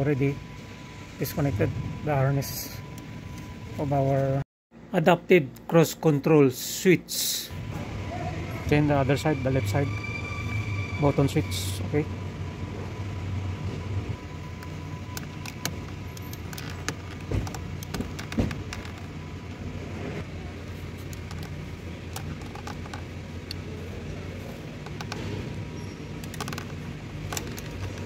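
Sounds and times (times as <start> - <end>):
steady low hum: 12.0 - 28.0.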